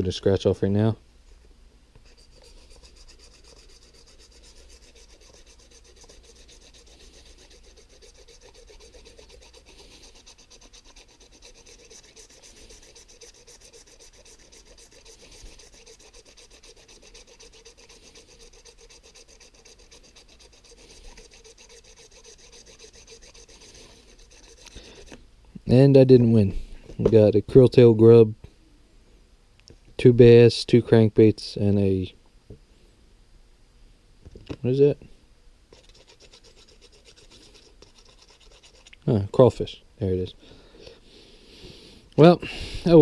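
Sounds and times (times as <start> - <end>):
knife scraping scratch card: 2.0 - 25.2, 35.8 - 39.0.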